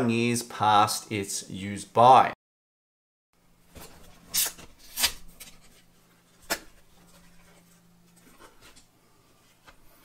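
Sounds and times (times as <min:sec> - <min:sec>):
cardboard tearing scrapes: 0:04.3 - 0:05.3.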